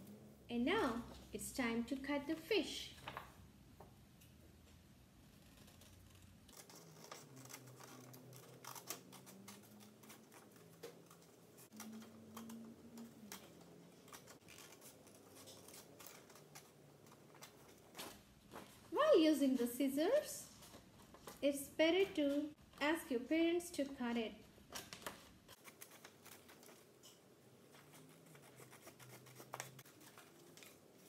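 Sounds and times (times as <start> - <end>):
scissors snipping paper: 5.3 - 18.2, 24.7 - 31.0.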